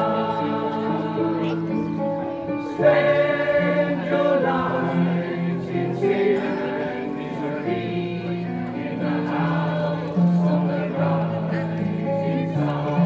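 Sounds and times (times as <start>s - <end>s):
choir singing in parts: 0.0s - 13.0s.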